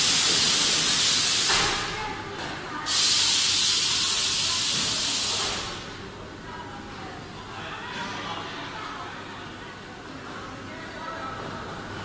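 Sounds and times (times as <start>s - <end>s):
compressed air hissing: 0.0s - 1.9s, 2.9s - 5.8s.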